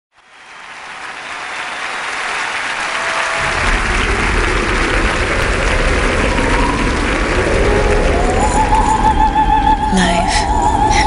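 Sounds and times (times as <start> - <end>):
crowd applauding: 0.1 - 10.9
deep bass music: 3.4 - 10.1.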